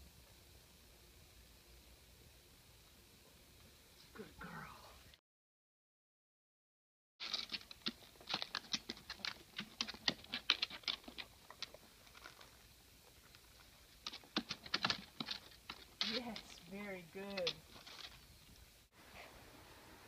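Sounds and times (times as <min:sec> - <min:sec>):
dog claws clicking on wooden board: 0:07.2 - 0:12.4, 0:14.0 - 0:16.6.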